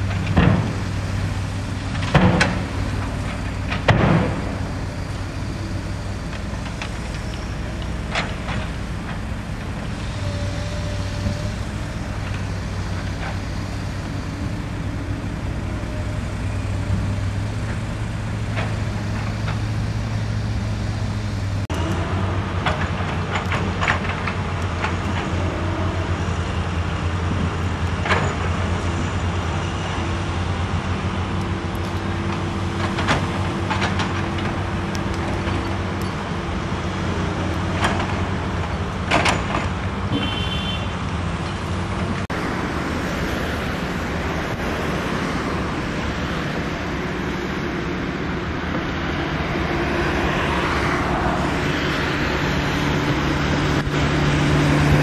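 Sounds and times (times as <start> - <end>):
diesel engines humming: 0.0 - 55.0
heavy equipment knocks: 3.6 - 4.7.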